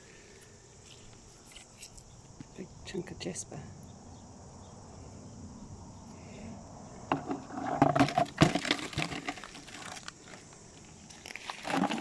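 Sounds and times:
beach stones and shells clattering: 0:07.1 - 0:12.0.

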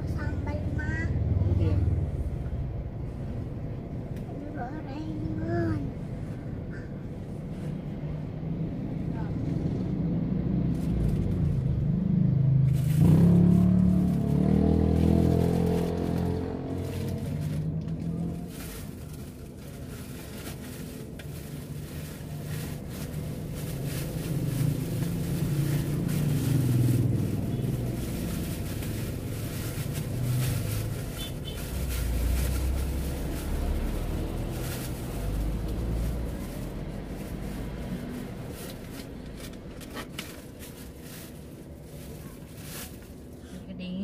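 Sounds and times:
low rumble of passing vehicles: 0:00.0 - 0:44.0.

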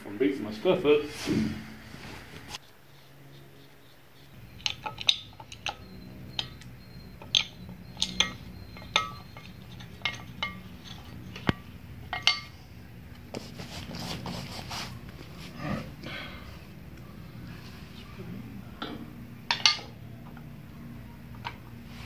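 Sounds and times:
metal parts clinking: 0:04.6 - 0:05.8, 0:07.2 - 0:11.5.

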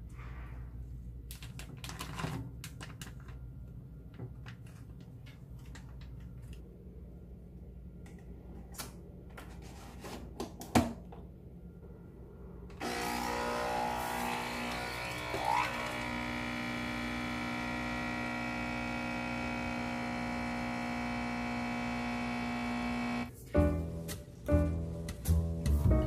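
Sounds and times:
low steady hum: 0:11.0 - 0:24.8
music: 0:23.3 - 0:26.0.

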